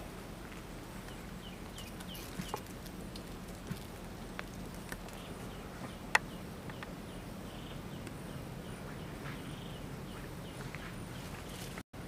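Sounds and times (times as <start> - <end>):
steady low hum: 0.0 - 12.0
faint bird chirps: 1.0 - 2.7, 5.0 - 11.8.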